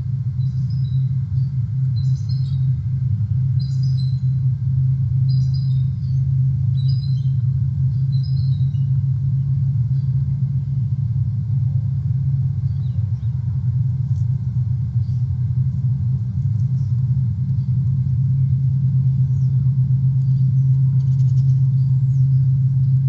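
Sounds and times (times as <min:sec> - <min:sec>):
low rumble: 0:00.0 - 0:23.0
high bird chirps: 0:05.3 - 0:09.0.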